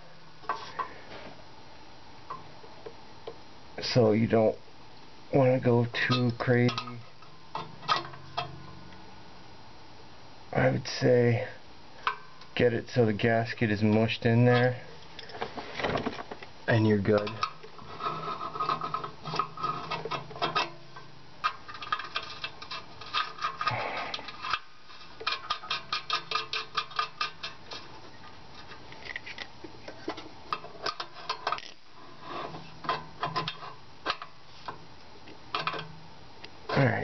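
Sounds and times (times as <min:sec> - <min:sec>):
metal wrench clicking and scraping: 0:17.1 - 0:27.9, 0:30.5 - 0:34.8.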